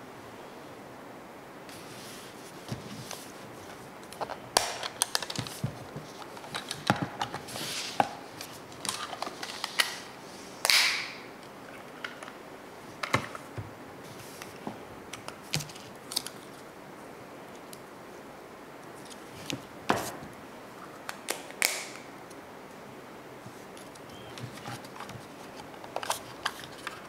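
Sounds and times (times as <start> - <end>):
handling rustle: 1.7 - 10.1, 23.5 - 27.0.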